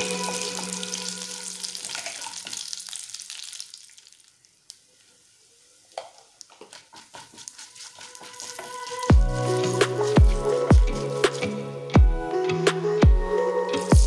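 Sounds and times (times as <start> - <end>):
food sizzling in oil: 0.0 - 11.9
spatula scraping a pan: 6.6 - 11.6.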